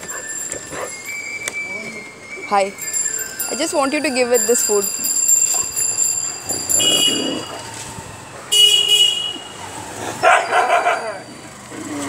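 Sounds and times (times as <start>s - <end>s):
vehicle horn toots: 6.7s - 7.6s, 8.5s - 9.5s.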